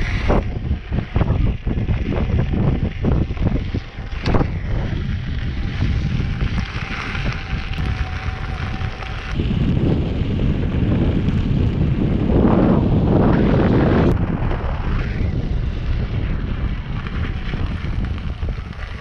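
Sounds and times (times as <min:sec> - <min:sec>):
wind rushing over microphone: 0:00.0 - 0:19.0.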